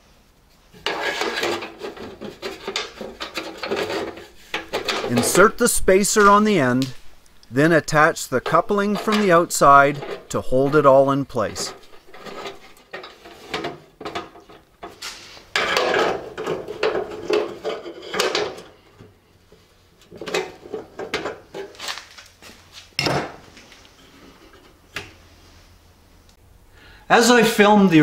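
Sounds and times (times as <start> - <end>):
metal clattering: 0.8 - 6.9, 7.9 - 18.8
metal pipe clinking and scraping: 0.8 - 6.9, 7.8 - 19.0.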